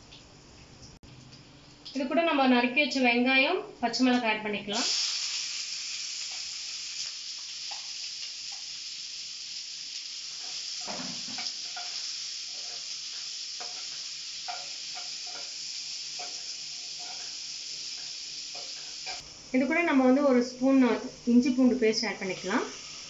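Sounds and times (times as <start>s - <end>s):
onions sizzling in hot oil: 4.0s - 23.0s
spatula scraping pan: 10.3s - 19.2s.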